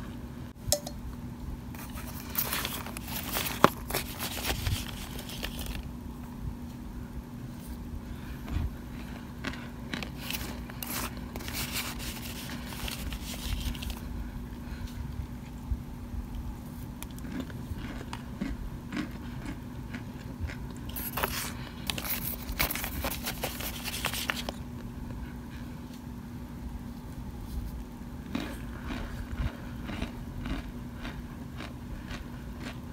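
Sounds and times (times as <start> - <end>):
spoon crunching cornstarch: 1.8 - 5.8, 9.4 - 14.0, 19.9 - 24.6.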